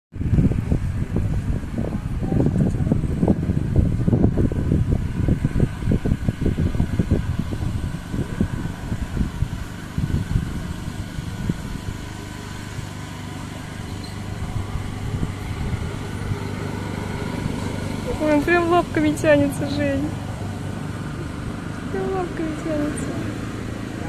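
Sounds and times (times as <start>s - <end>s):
wind buffeting microphone: 0.1s - 24.0s.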